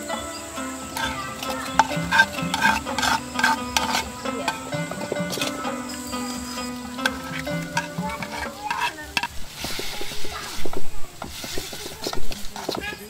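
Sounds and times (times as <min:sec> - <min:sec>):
food sizzling in oil: 0:00.0 - 0:13.0
metal spatula scraping wok: 0:00.0 - 0:13.0
food scraped from plastic bowl: 0:01.0 - 0:05.6, 0:07.0 - 0:12.8.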